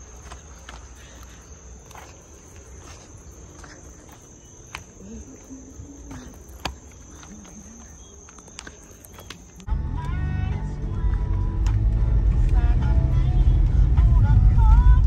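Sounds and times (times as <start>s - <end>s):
insects chirring: 0.0s - 10.4s.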